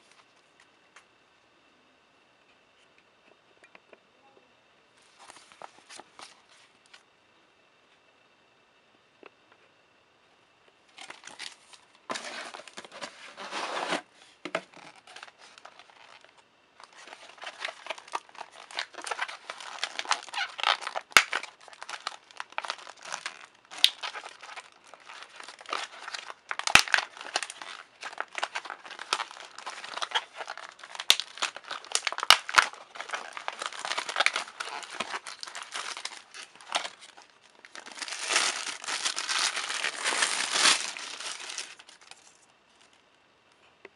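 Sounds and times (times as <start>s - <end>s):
plastic bag crinkling: 14.7s - 43.0s.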